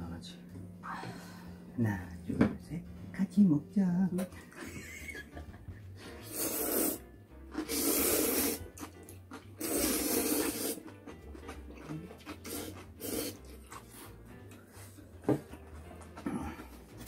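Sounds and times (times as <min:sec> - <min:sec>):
person slurping noodles: 0:06.1 - 0:08.9, 0:09.6 - 0:10.9, 0:12.2 - 0:14.1.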